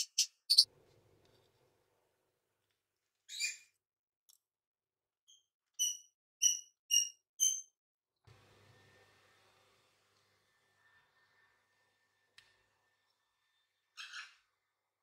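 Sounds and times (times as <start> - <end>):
small bird chirping: 0.0 - 0.7, 3.3 - 3.8, 5.2 - 7.8.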